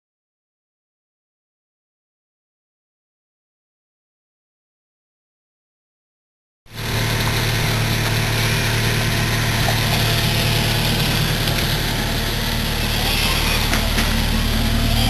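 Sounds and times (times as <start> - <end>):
vehicle engine idling: 6.7 - 15.0.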